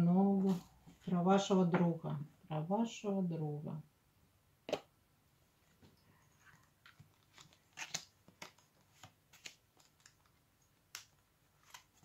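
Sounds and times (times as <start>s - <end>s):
cards being shuffled: 6.5s - 12.0s.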